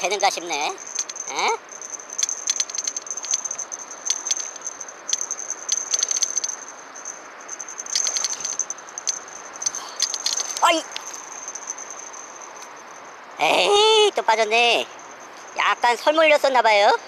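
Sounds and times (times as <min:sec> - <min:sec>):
fishing reel clicking and rattling: 0:00.0 - 0:13.2.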